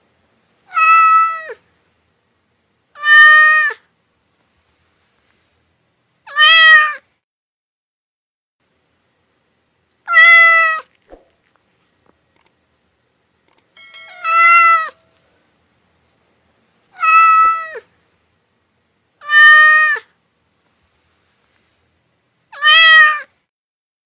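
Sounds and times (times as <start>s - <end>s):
cat meowing: 0.7s - 1.6s, 3.0s - 3.8s, 6.3s - 7.0s, 10.1s - 10.9s, 14.2s - 15.0s, 17.0s - 17.9s, 19.2s - 20.1s, 22.5s - 23.3s.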